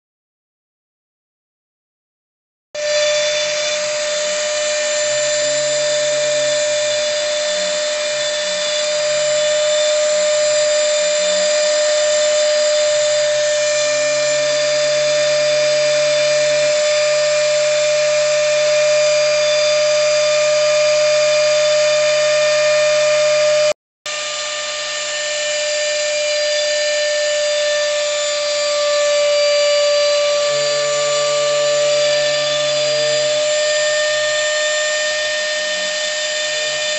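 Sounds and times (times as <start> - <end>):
motor hum sliding in pitch: 2.8 - 36.9
router spindle high whine: 2.8 - 36.9.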